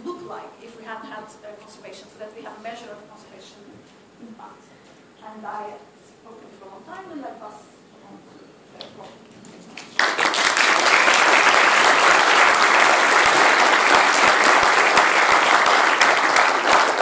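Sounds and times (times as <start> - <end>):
audience applauding: 9.8 - 17.0.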